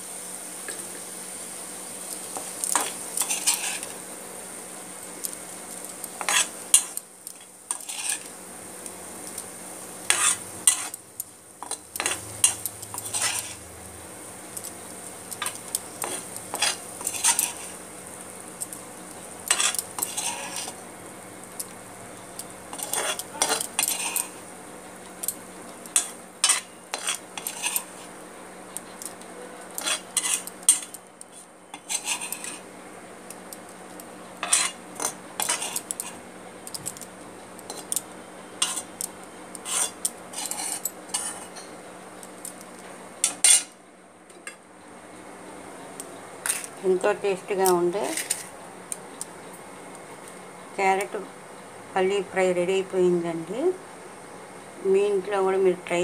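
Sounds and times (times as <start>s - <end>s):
metal spoon scraping a metal pan: 2.8s - 4.0s, 6.2s - 8.3s, 10.1s - 11.0s, 11.6s - 13.6s, 15.4s - 17.8s, 19.5s - 20.8s, 22.7s - 24.4s, 25.9s - 28.1s, 29.7s - 32.6s, 34.4s - 36.2s, 37.7s - 38.0s, 38.6s - 38.9s, 39.6s - 41.8s, 43.2s - 43.7s, 46.4s - 46.7s, 47.6s - 48.5s.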